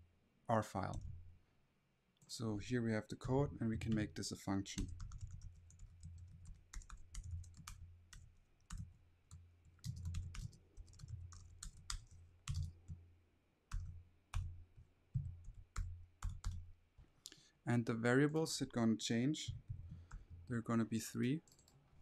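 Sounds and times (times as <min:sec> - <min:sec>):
computer keyboard typing: 0:03.8 - 0:04.1, 0:04.8 - 0:12.9, 0:13.7 - 0:14.5, 0:15.2 - 0:16.6, 0:21.5 - 0:21.7.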